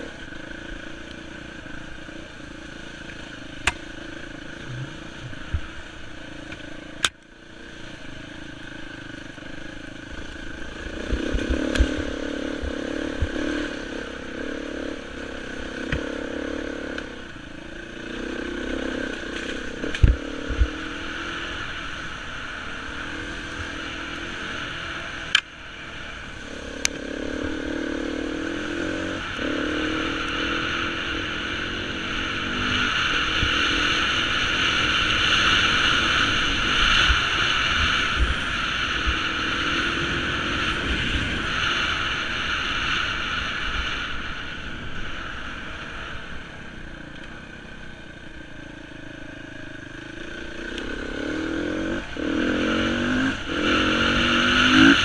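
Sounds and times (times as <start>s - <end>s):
motorcycle engine revving: 0.0s - 55.0s
wind noise on microphone: 37.0s - 45.2s.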